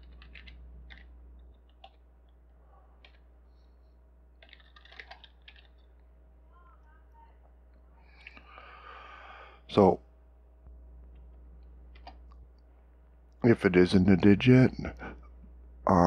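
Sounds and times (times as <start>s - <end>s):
faint keyboard typing: 0.0s - 3.7s, 4.3s - 7.0s, 10.6s - 12.7s.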